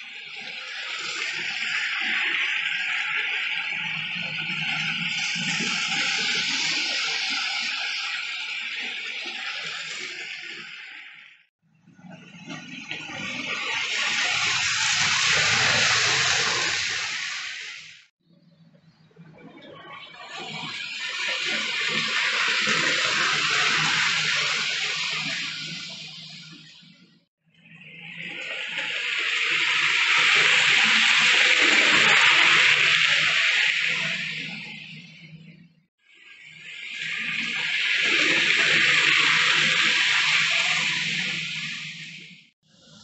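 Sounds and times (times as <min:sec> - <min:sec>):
loud rushing hiss: 0:14.1 - 0:18.0.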